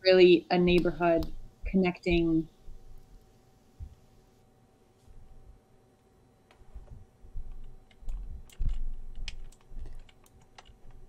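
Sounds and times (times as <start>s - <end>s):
keyboard typing and clicking: 7.4s - 11.0s.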